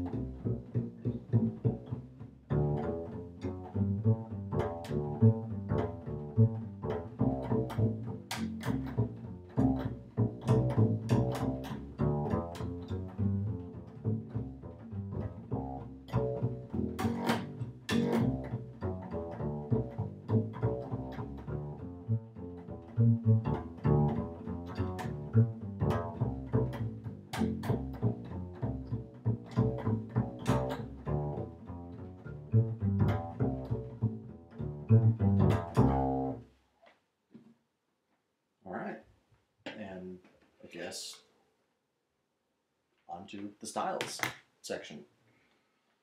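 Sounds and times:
plucked bass notes: 0.0s - 36.5s.

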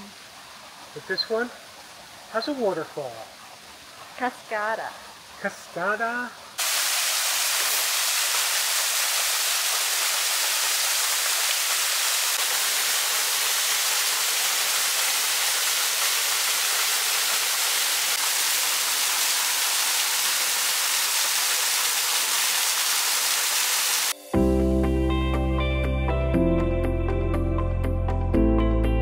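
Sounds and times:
waterfall pouring: 6.6s - 24.2s.

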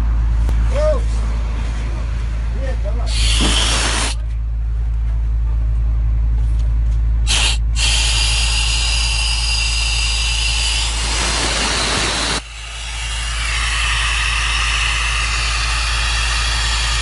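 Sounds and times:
oxygen hissing from a mask: 3.1s - 4.2s, 7.3s - 17.0s
low rumble: 3.8s - 17.0s.

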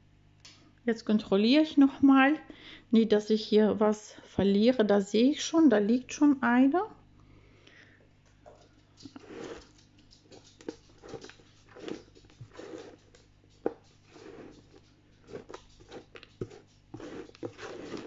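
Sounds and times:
hand rustling potting soil: 9.1s - 18.0s.

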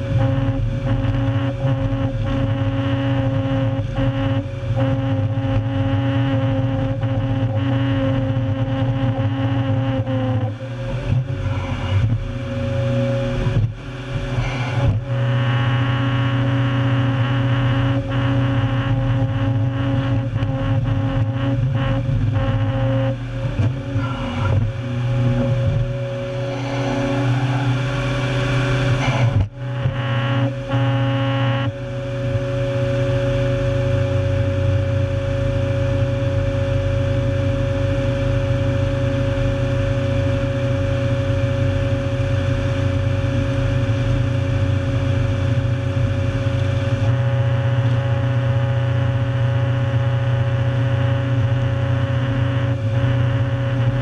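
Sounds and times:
heavy diesel engine running: 0.0s - 54.0s
cutter grinding wood stump: 18.2s - 31.3s.

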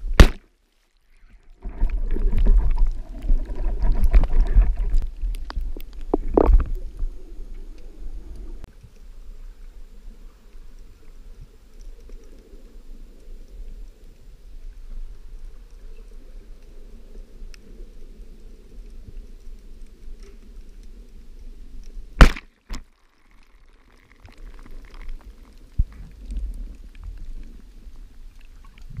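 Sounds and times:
speargun firing crack: 0.1s - 0.5s, 22.2s - 22.8s
low underwater rumble: 1.2s - 22.2s, 24.2s - 29.0s.

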